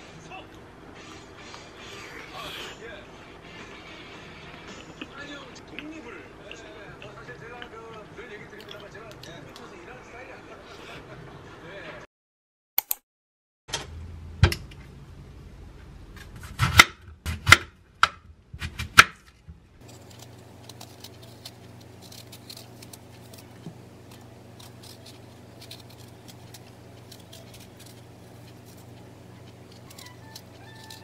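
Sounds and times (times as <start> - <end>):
low steady hum: 13.7 - 31.0
knife scraping peeling apple: 16.3 - 17.6, 19.8 - 31.0.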